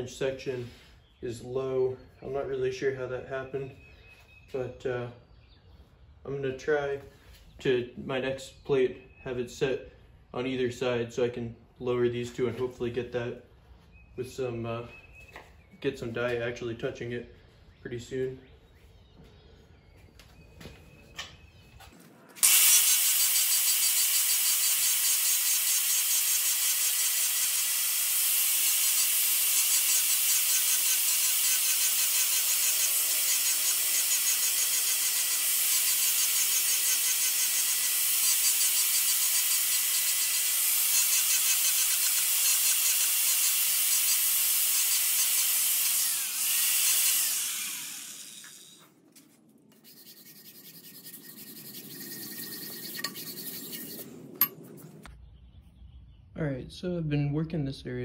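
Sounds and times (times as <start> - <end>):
angle grinder grinding metal: 22.4 - 48.8, 49.8 - 54.6.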